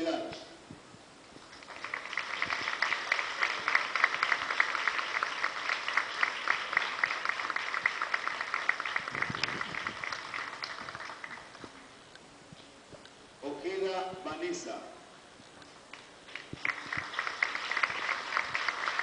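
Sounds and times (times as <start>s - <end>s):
audience applauding: 1.6s - 11.6s, 15.9s - 19.0s.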